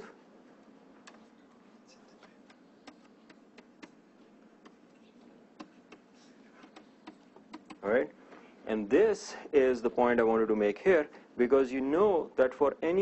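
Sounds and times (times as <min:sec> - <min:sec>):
stylus tapping on tablet screen: 0:02.4 - 0:04.0, 0:05.6 - 0:07.8.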